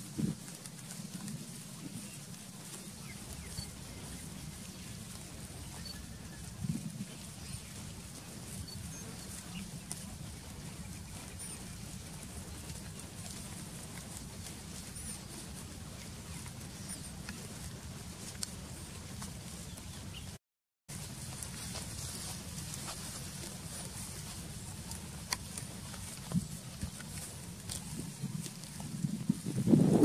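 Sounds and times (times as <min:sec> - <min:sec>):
goats cropping grass: 0:00.0 - 0:30.0.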